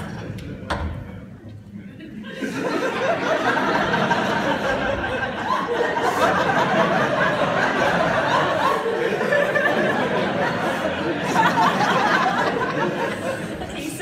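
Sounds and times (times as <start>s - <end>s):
audience laughing: 1.8s - 14.0s
people talking: 11.1s - 14.0s.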